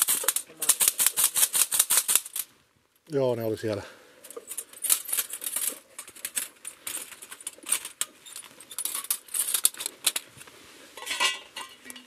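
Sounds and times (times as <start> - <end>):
metal parts clinking and rattling: 0.0 - 2.5, 4.2 - 10.3, 11.0 - 12.0.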